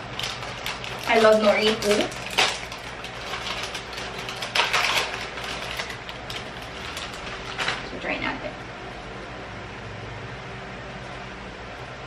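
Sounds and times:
plastic wrapper crinkling: 0:00.0 - 0:08.0.

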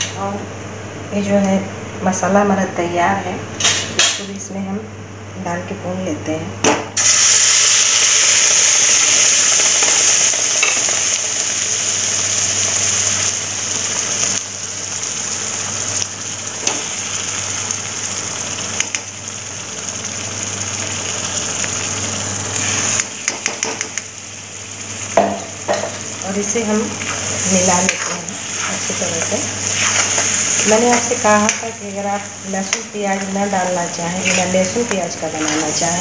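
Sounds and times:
paste sizzling in hot oil: 0:07.0 - 0:36.0
spatula scraping a pan: 0:29.6 - 0:31.1, 0:34.1 - 0:34.7.

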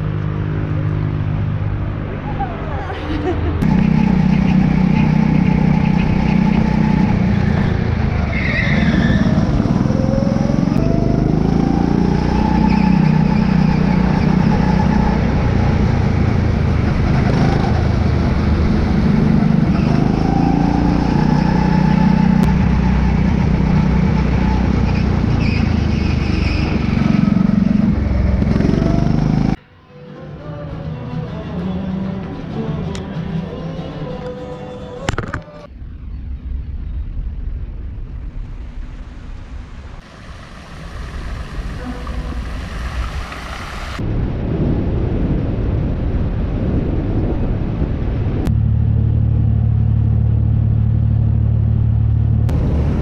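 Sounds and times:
go-kart engine revving: 0:03.4 - 0:29.6.

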